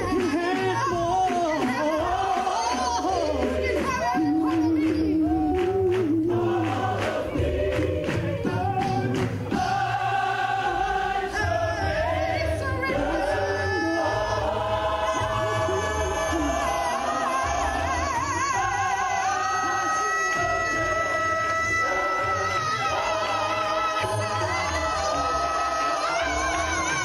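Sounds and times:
beat: 0.0 - 27.0
gospel choir singing: 0.0 - 27.0
lead singers on microphones: 0.0 - 27.0.

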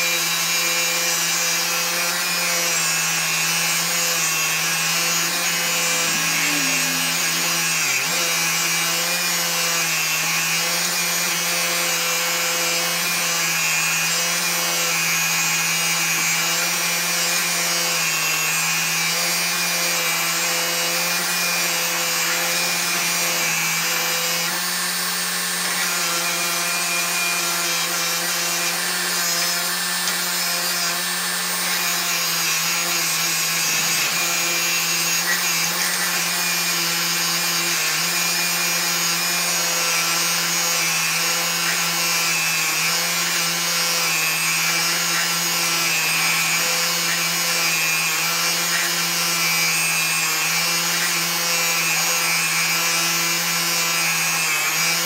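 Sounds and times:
bench grinder motor hum: 0.0 - 55.0
wire wheel scratching metal: 3.8 - 9.9.

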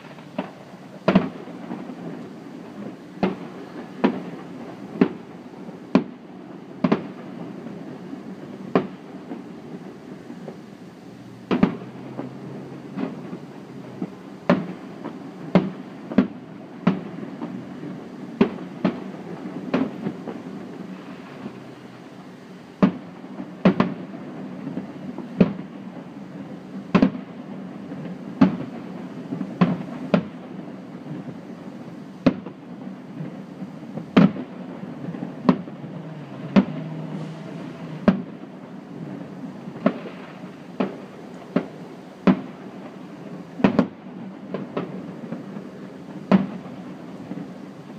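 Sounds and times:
firework bangs: 0.0 - 47.9.

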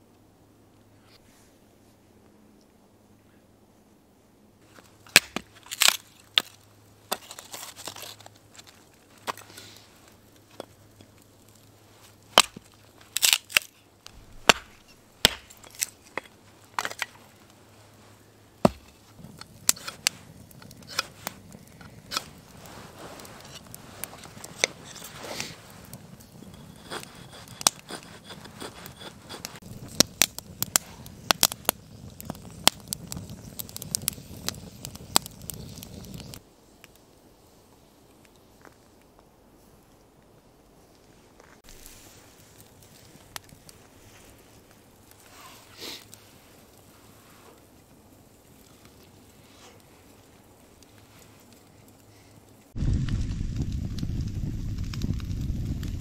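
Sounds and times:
faint steady hiss: 0.0 - 56.0
firewood knocking and snapping: 5.0 - 9.6, 10.3 - 17.5, 18.6 - 22.5, 26.5 - 36.4.

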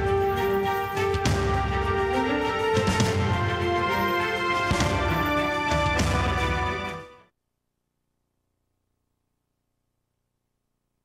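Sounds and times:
faint tape hiss: 7.3 - 11.0.

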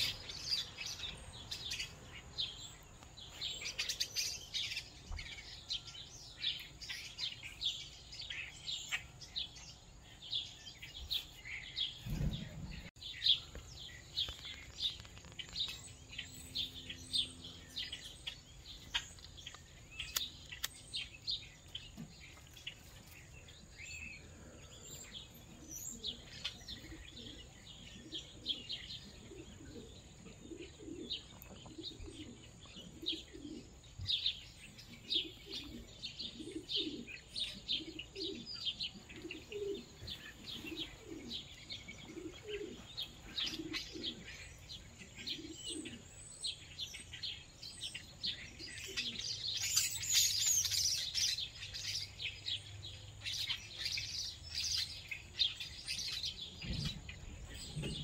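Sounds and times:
small birds chirping: 0.0 - 58.0
doves cooing: 21.4 - 58.0.

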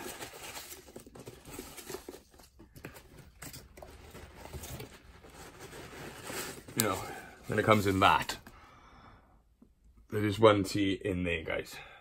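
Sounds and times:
rustling packing peanuts: 0.0 - 8.4.

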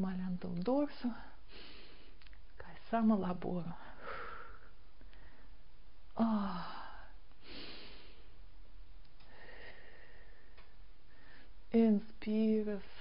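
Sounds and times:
woman breathing: 1.1 - 2.2, 3.7 - 8.5, 9.2 - 11.7
woman sighing: 6.2 - 8.1.

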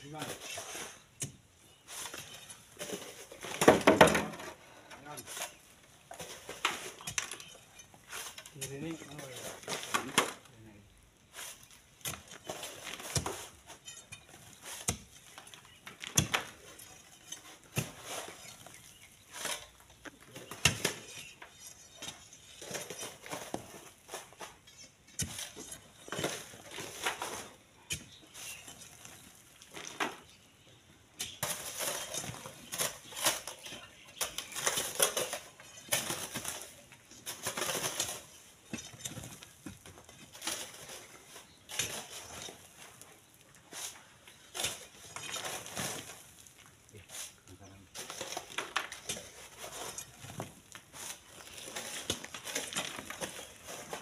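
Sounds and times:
hoes scraping sand into wheelbarrow: 0.0 - 10.4, 11.2 - 30.4, 31.2 - 54.0
loose sand sliding: 11.2 - 13.9, 40.3 - 48.6.

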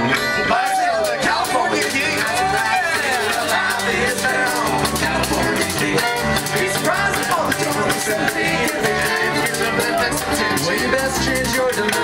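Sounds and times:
banjo picking: 0.0 - 12.0
bluegrass band playing: 0.0 - 12.0
upright double bass: 0.0 - 12.0.

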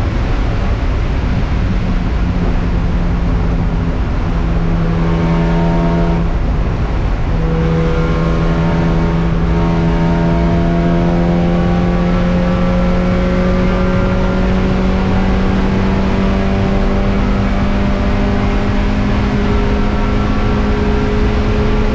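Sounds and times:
race car engine accelerating: 0.0 - 21.9.

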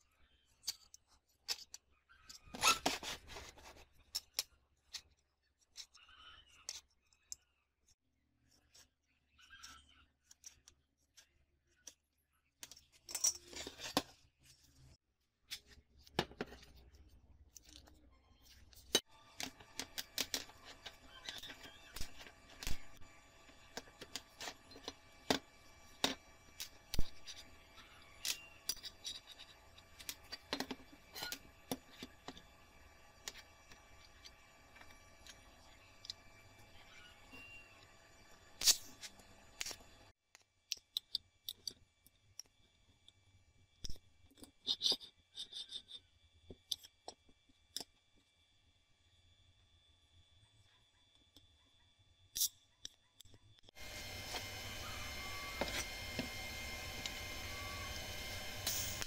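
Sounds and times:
marker squeaking on steel: 2.1 - 3.9, 5.7 - 7.0, 8.7 - 10.6, 19.6 - 32.1, 44.6 - 46.1
steel parts clinking and scraping: 12.6 - 14.2, 17.5 - 32.5, 54.3 - 59.0.

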